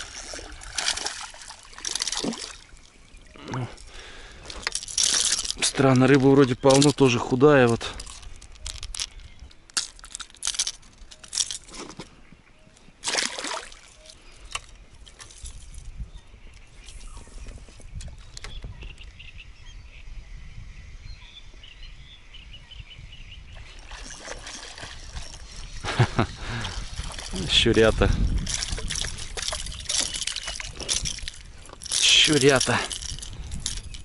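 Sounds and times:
fishing tackle clicks and knocks: 0:00.0 - 0:02.7, 0:03.5 - 0:12.1, 0:13.0 - 0:15.9, 0:23.8 - 0:34.0
splash in water: 0:00.0 - 0:02.7, 0:13.0 - 0:14.0, 0:23.6 - 0:25.5
faint birdsong: 0:00.0 - 0:34.0.

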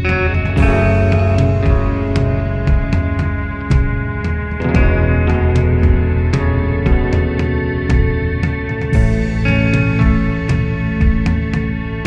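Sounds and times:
drums: 0:00.0 - 0:12.0
electric guitar chords: 0:00.0 - 0:12.0.

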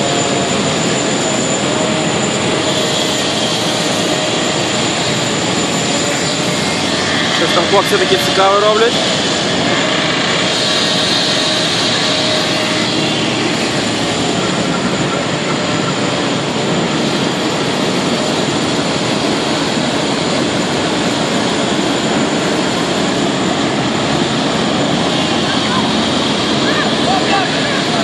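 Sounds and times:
road milling machine running: 0:00.0 - 0:28.0.

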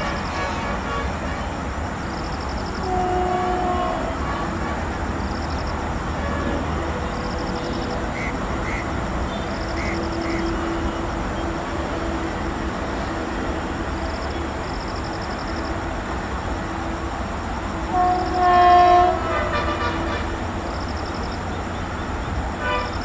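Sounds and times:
high pulsing insect chirp: 0:02.0 - 0:03.0, 0:05.2 - 0:06.0, 0:07.0 - 0:11.5, 0:14.0 - 0:15.8, 0:20.7 - 0:23.0.

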